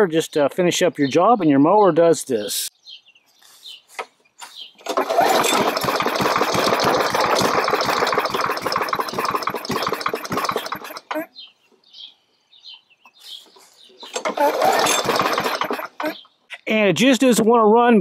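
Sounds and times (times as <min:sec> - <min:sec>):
lawn mower engine running: 0:04.8 - 0:11.3, 0:14.0 - 0:16.2.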